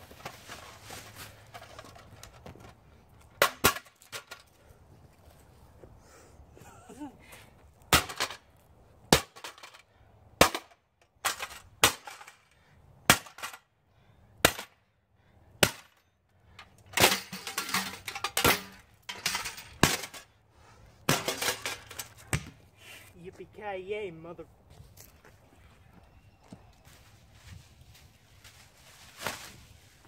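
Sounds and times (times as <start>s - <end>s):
broken pieces clattering: 17.0s - 20.3s
pickaxe smashing a scale: 21.1s - 22.0s.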